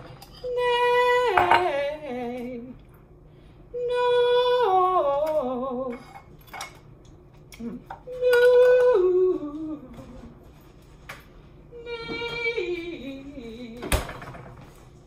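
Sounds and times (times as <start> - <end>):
woman singing vocal warm-up: 0.4 - 2.9, 3.7 - 6.2, 7.6 - 10.4, 11.7 - 14.2.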